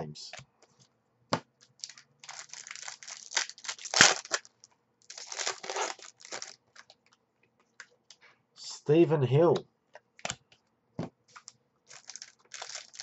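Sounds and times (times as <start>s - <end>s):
foil wrapper crinkling and tearing: 1.6s - 6.9s, 11.3s - 13.0s.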